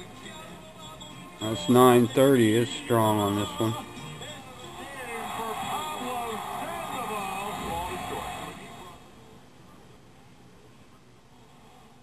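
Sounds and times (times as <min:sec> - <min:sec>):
weak radio station audio: 0:00.0 - 0:12.0
radio static hiss: 0:05.0 - 0:09.4.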